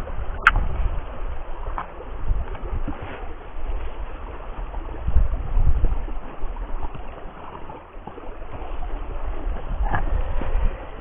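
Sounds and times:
creek water rushing: 0.0s - 11.0s
wind buffeting microphone: 0.0s - 11.0s.

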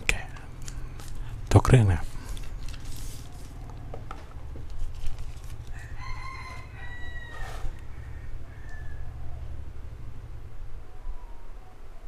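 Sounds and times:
steady low hum: 0.0s - 12.0s
rooster crowing: 5.7s - 9.6s.

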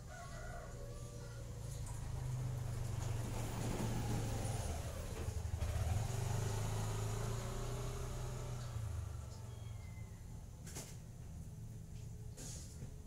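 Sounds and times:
vehicle engine running: 1.8s - 10.5s.

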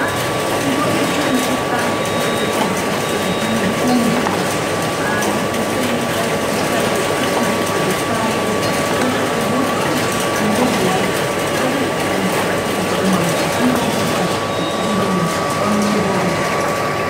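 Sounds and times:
printing machine mechanical clatter: 0.0s - 17.0s
thin machine whine: 0.0s - 17.0s.

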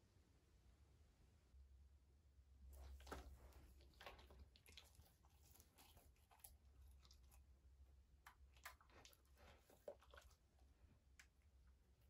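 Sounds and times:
dogs chewing meat: 2.8s - 11.6s.

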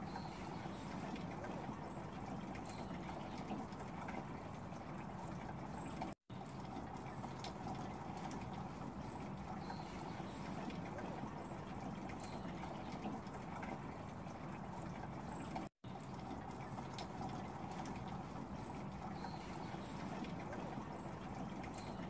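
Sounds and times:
water pouring into plastic jug: 0.0s - 22.0s.

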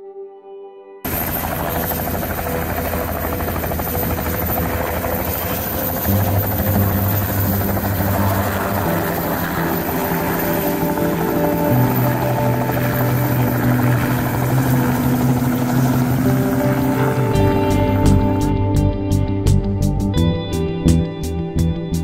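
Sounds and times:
helicopter engine noise: 1.1s - 18.5s
helicopter rotor chop: 1.1s - 18.5s.

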